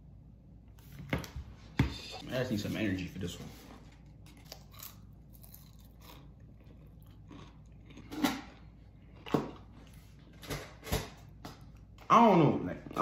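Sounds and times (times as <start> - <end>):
person chewing crunchy food: 4.2 - 10.0.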